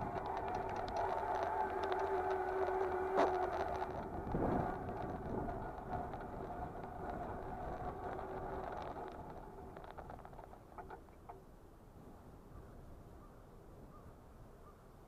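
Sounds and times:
tyres crunching on gravel and slush: 0.0 - 10.8
electric motor whining: 0.0 - 11.0.

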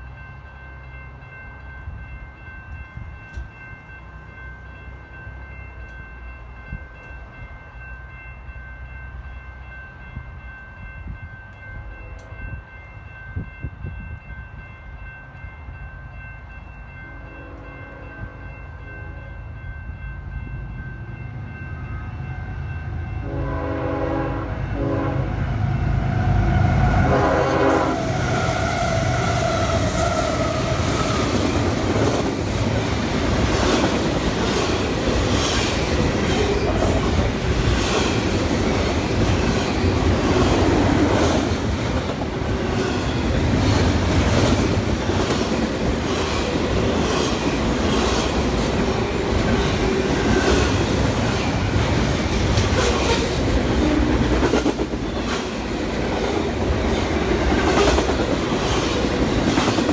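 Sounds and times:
continuous train rumble: 0.0 - 59.9
train wheels clicking on rail joints: 2.7 - 3.6, 28.9 - 59.9
train horn: 23.2 - 31.2.

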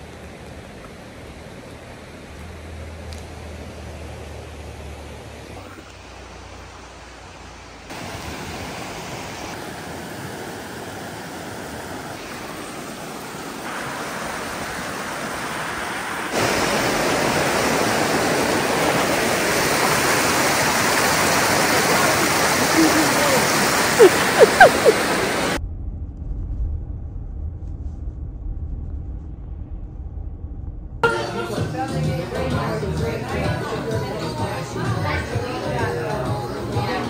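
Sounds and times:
creek water flowing: 0.0 - 25.6.

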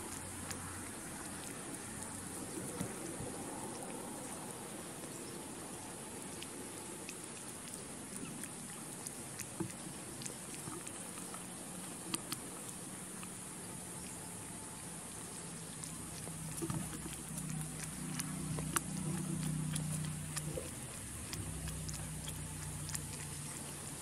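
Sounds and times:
cat licking kittens: 0.0 - 24.0
small clicks and ticks: 5.0 - 14.2, 15.2 - 24.0.

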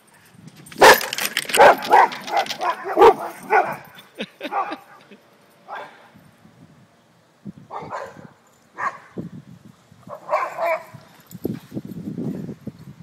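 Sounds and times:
dog barking: 0.8 - 4.8, 5.7 - 6.1, 7.7 - 9.1, 10.1 - 11.0.

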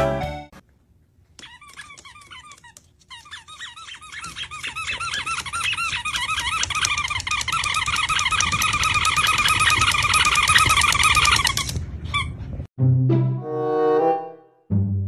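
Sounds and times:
high squeaks: 1.4 - 12.5.

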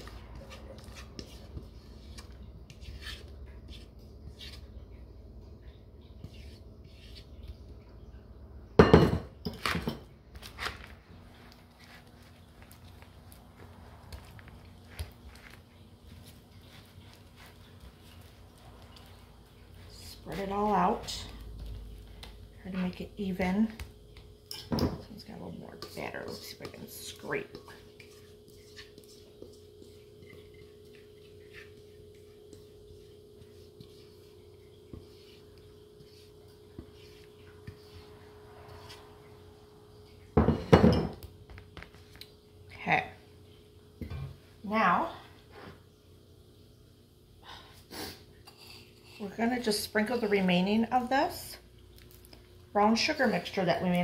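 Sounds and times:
spatula scraping baking pan: 0.0 - 4.7, 6.2 - 7.4, 24.5 - 39.4
faint steady hum: 0.0 - 54.0.

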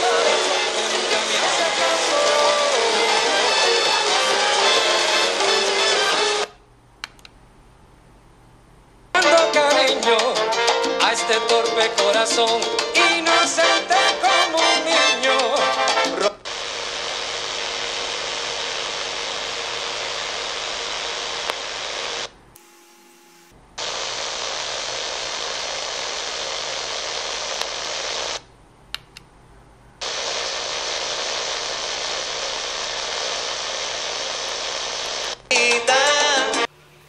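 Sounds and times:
radio static hiss: 0.0 - 6.6, 16.3 - 28.4, 30.0 - 35.6.

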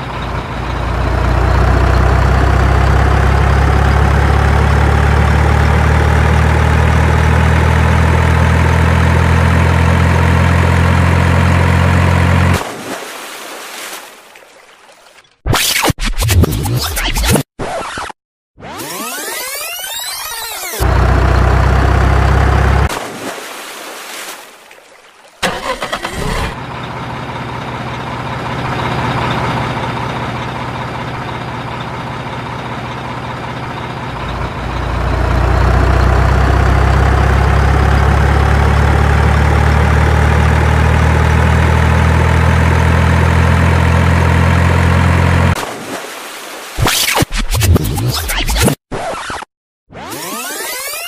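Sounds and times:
truck engine humming: 0.0 - 12.6, 20.8 - 22.9, 25.4 - 45.6.

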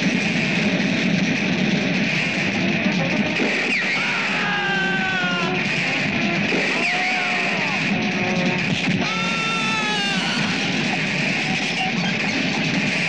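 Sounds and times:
action film music: 0.0 - 13.0.

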